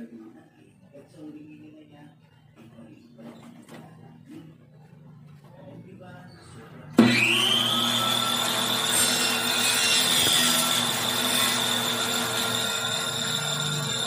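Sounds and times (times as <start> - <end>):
table saw whining: 7.0 - 14.0.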